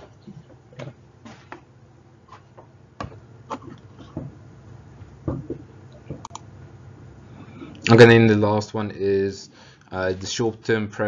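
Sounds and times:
faint clicks and knocks: 0:05.2 - 0:06.5.

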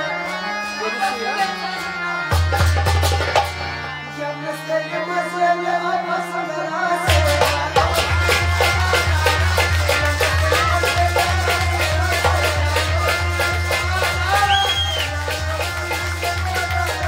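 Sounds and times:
harmonium: 0:00.0 - 0:17.0
fast hand percussion: 0:02.3 - 0:03.7, 0:07.1 - 0:17.0.

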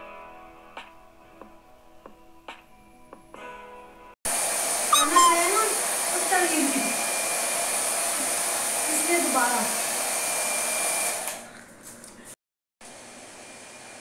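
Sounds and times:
hair dryer blowing: 0:04.3 - 0:11.5, 0:12.8 - 0:14.0.

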